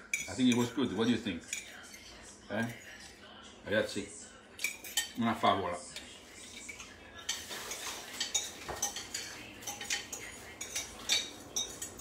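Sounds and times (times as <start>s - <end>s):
cutlery clinking on ceramic dish: 0.0s - 2.8s, 4.6s - 5.2s, 6.0s - 12.0s.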